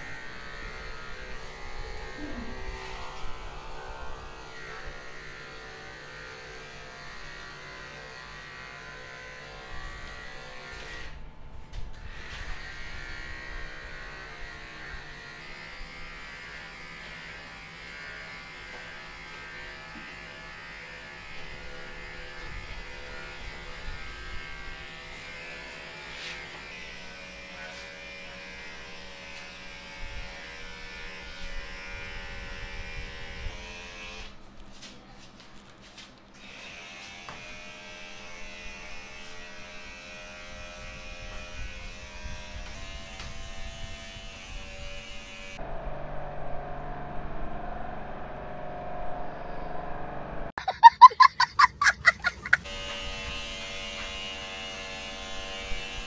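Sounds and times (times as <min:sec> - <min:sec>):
electric hair clipper buzzing: 0:00.0 - 0:34.4, 0:36.4 - 0:45.6, 0:51.5 - 0:56.0.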